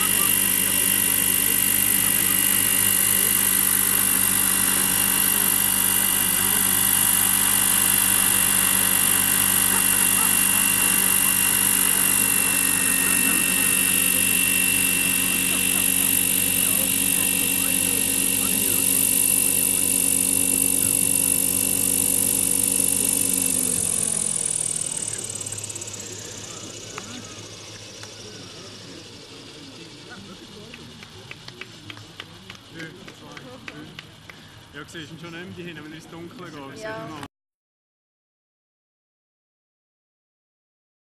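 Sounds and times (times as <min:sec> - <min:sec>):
high drive whine: 0:00.0 - 0:37.2
model helicopter rotor noise: 0:00.0 - 0:37.3.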